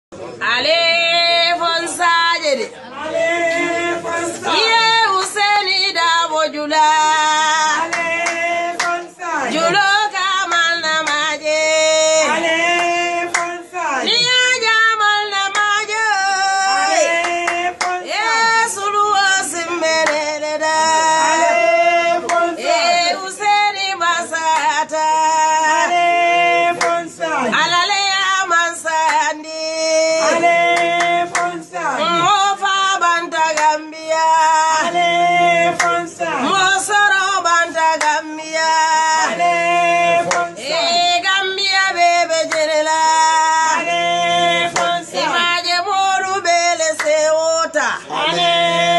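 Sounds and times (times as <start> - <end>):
hand clapping: 7.7 - 9.8, 10.5 - 11.3, 12.7 - 13.6, 15.4 - 16.0, 17.1 - 18.9, 20.0 - 20.4, 22.2 - 22.5, 24.4 - 24.8, 26.8 - 27.1, 28.9 - 29.4, 30.2 - 31.6, 33.1 - 33.9, 35.7 - 38.3, 40.2 - 41.1, 41.9 - 42.8, 44.7 - 45.5, 46.8 - 47.2.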